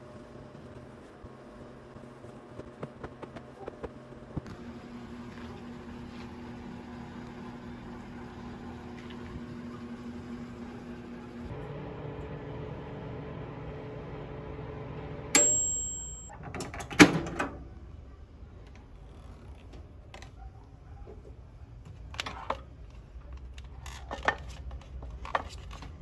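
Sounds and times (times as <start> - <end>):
microwave oven humming: 0.0 - 18.4
microwave bell ding: 15.3 - 16.3.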